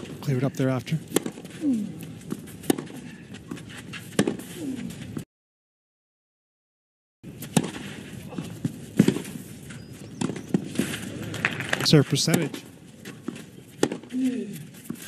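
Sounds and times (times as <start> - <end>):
racket hitting tennis ball: 1.0 - 5.2, 7.3 - 11.2, 12.3 - 15.0
low crowd hum: 7.3 - 15.0.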